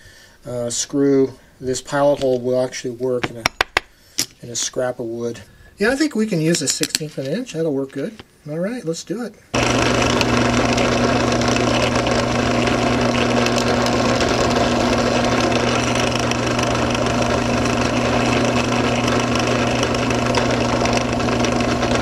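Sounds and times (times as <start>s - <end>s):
drill bit drilling wood: 9.6s - 22.0s
drill press motor hum: 9.6s - 22.0s.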